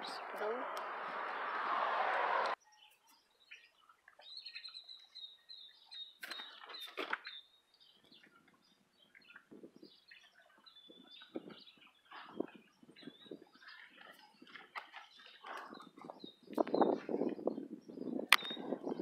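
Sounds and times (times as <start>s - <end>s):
small birds chirping: 0.0s - 1.7s, 2.4s - 19.0s
loud rush of noise: 0.0s - 2.6s.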